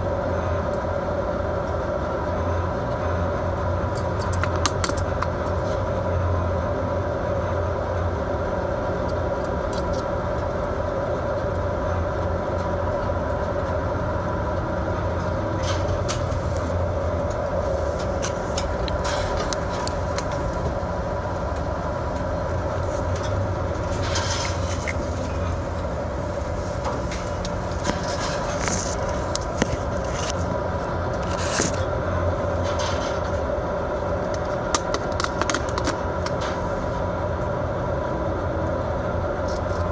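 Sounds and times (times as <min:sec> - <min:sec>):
boat engine droning: 0:00.0 - 0:39.9
constant rushing noise: 0:00.0 - 0:39.9
sharp clicks and rattles: 0:03.9 - 0:05.7, 0:15.5 - 0:25.9, 0:34.2 - 0:36.6.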